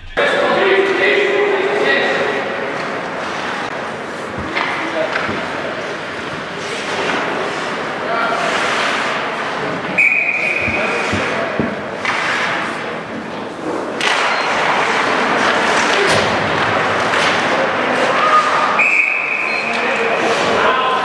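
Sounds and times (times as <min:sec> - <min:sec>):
puck and sticks knocking on boards: 0:03.7 - 0:07.8, 0:08.6 - 0:18.2.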